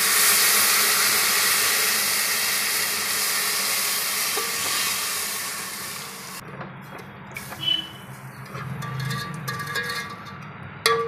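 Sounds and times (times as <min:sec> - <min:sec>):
milk sizzling in a hot pan: 0:00.0 - 0:06.4.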